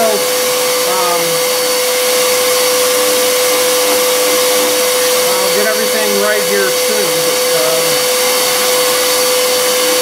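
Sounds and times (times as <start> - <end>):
router spindle whine: 0.0 - 10.0
shop vacuum running: 0.0 - 10.0.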